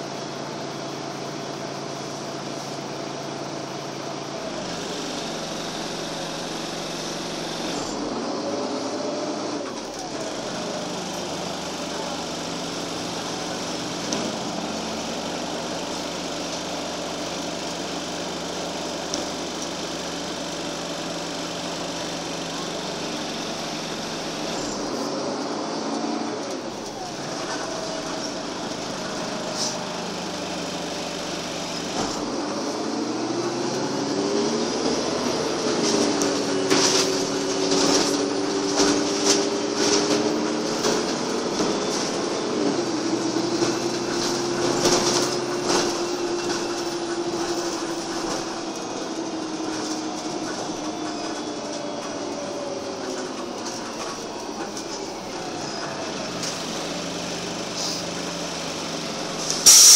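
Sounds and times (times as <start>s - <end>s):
bus engine whine: 0.0s - 59.9s
rattles and knocks of bus body: 35.0s - 55.1s.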